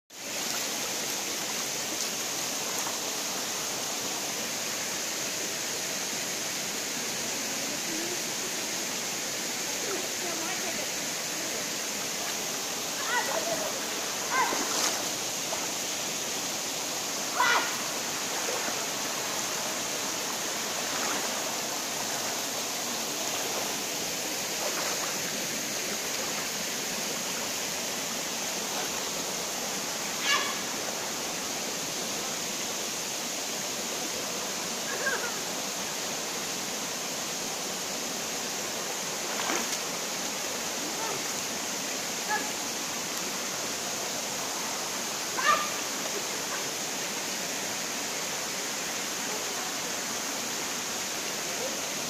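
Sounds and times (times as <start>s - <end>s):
stream running over cascades: 0.1s - 52.0s.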